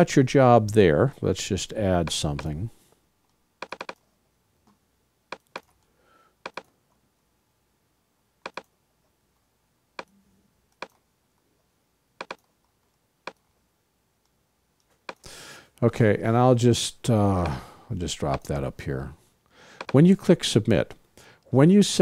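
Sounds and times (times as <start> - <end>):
computer mouse clicking: 3.6 - 4.0, 5.3 - 6.7, 8.4 - 8.7, 12.2 - 12.5, 14.8 - 15.3, 19.8 - 20.0.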